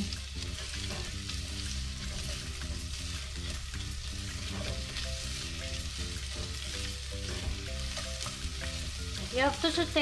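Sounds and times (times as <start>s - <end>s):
onions sizzling in oil: 0.0s - 10.0s
spatula scraping metal pot: 0.5s - 5.6s.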